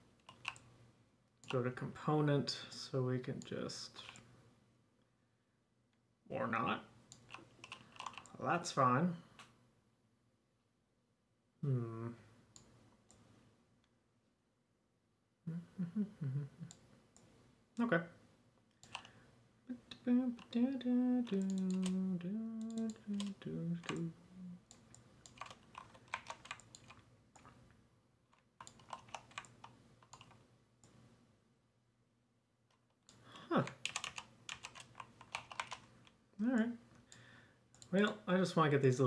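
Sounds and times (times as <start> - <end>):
keyboard and mouse clicking: 0.2 - 0.7, 7.1 - 8.4, 18.8 - 19.1, 21.2 - 22.0, 22.6 - 24.1, 24.7 - 27.6, 28.3 - 31.0, 33.1 - 38.2
person humming: 11.6 - 12.2, 15.5 - 16.8, 19.7 - 24.7.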